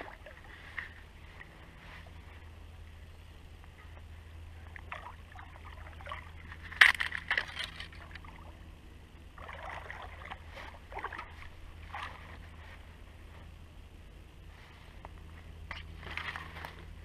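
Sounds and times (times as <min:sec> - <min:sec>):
fish splashing in water: 0:09.4 - 0:12.4.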